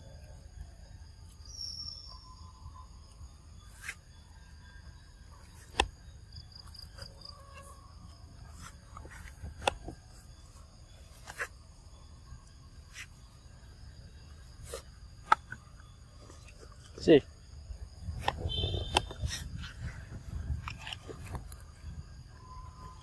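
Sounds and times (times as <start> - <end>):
insects trilling: 0.0 - 23.0.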